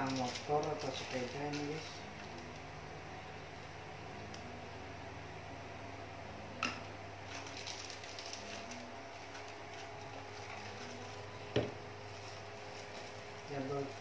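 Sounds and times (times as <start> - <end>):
plastic wrap crinkling: 0.0 - 2.0, 7.3 - 14.0
steady low hum: 0.0 - 14.0.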